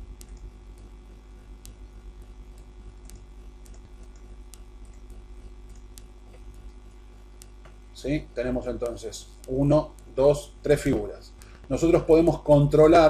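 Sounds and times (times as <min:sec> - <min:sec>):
computer mouse clicks: 0:00.0 - 0:07.8, 0:08.7 - 0:10.2
low electrical hum: 0:00.0 - 0:13.0.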